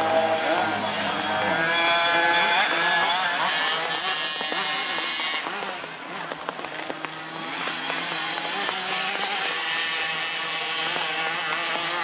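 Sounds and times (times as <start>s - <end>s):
motocross bike engine revving: 0.0s - 12.0s.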